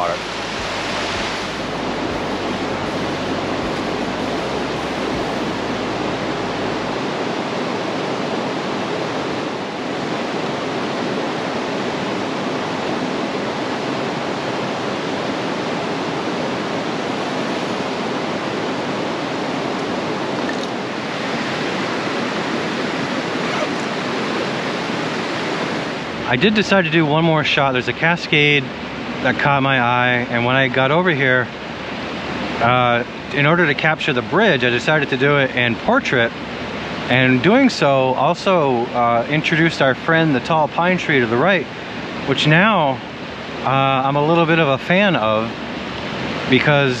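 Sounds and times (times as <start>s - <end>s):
river water rushing over rocks: 0.0s - 27.4s.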